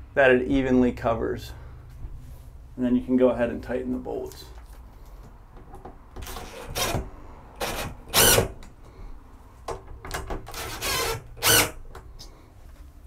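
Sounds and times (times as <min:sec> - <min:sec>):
cordless driver spinning bolts: 0:10.2 - 0:11.8.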